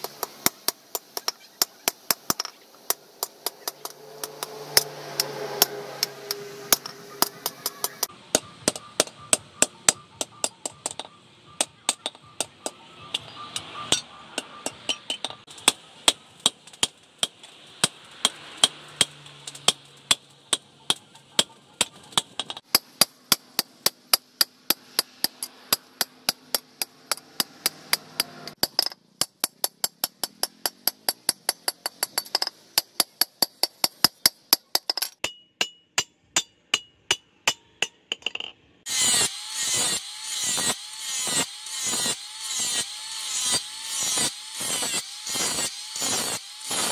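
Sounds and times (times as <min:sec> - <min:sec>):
hammer striking steel: 0:00.0 - 0:42.8
angle grinder grinding metal: 0:03.4 - 0:08.1, 0:38.9 - 0:46.9.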